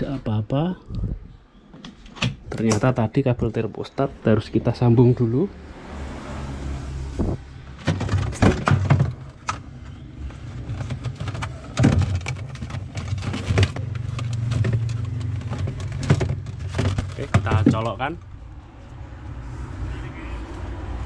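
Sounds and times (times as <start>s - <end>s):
plastic and wire clicks and rustles: 7.8s - 18.3s.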